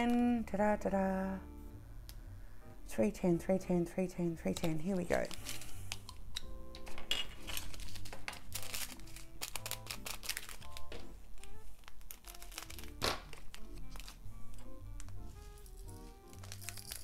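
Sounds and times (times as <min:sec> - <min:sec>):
soft background music: 0:00.0 - 0:17.0
plastic beads rattling in tray: 0:04.5 - 0:06.1, 0:06.8 - 0:14.2, 0:15.6 - 0:17.0
plastic bag crinkling: 0:04.6 - 0:06.2, 0:07.4 - 0:17.0.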